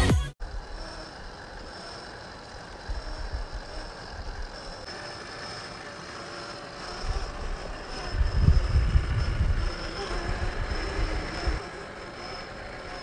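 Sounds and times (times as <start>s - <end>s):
wind rumble on microphone: 7.0s - 11.7s.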